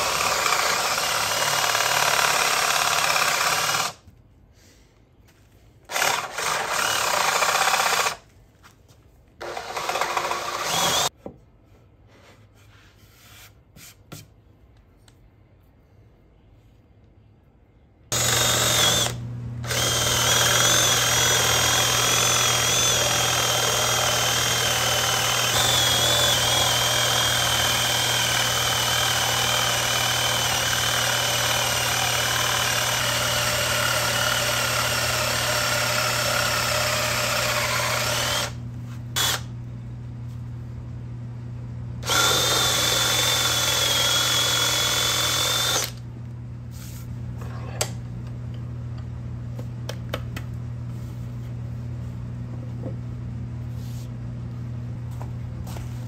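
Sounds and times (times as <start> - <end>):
drill bit cutting wood: 0.0 - 4.0, 5.9 - 8.2, 9.4 - 11.1, 18.2 - 38.6, 39.2 - 39.5, 42.0 - 46.0
drill press motor hum: 0.0 - 4.0, 9.4 - 11.1, 18.1 - 38.6, 39.2 - 39.5, 42.0 - 46.0.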